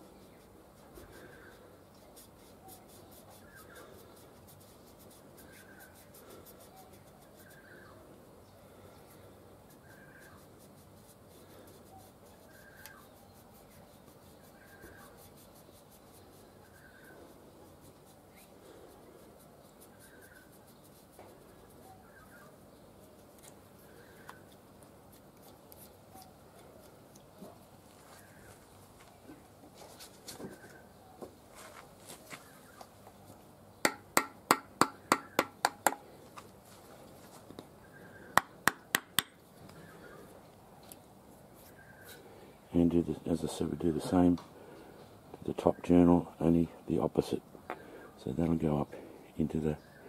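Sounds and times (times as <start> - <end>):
faint rubbing and handling: 0.0 - 33.5, 36.1 - 38.2, 39.5 - 44.4
sharp ringing tool taps: 33.9 - 36.0.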